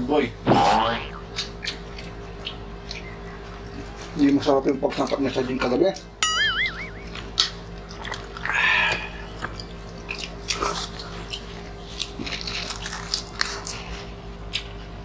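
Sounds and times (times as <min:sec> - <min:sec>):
faint steady hum: 0:00.0 - 0:15.0
people chewing and smacking: 0:00.5 - 0:06.2, 0:07.0 - 0:15.0.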